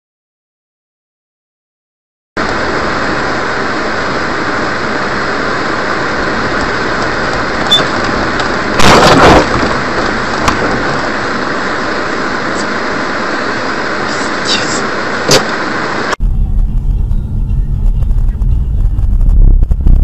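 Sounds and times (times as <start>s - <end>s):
road and engine noise: 2.4s - 20.0s
car collision impact: 7.3s - 11.0s.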